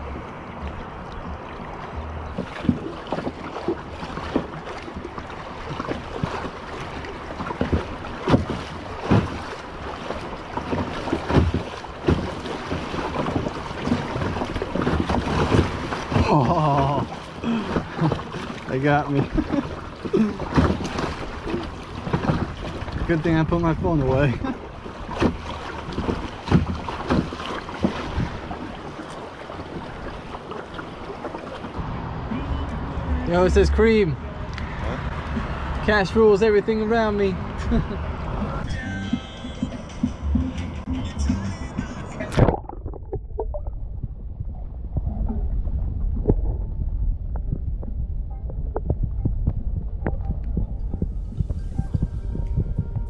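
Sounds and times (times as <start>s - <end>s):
wind buffeting microphone: 0.0s - 29.0s, 41.8s - 53.0s
paddle splashing: 0.0s - 49.0s
choppy water: 0.0s - 53.0s.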